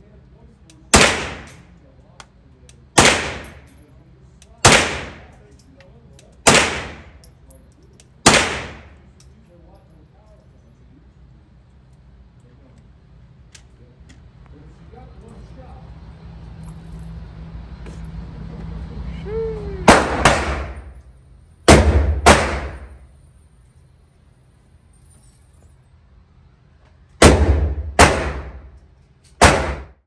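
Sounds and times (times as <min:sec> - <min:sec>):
suppressed gunshots ringing indoors: 0:00.9 - 0:01.8, 0:03.0 - 0:03.8, 0:04.6 - 0:05.4, 0:06.4 - 0:07.3, 0:08.2 - 0:09.1, 0:19.9 - 0:21.0, 0:21.7 - 0:23.1, 0:27.1 - 0:30.0.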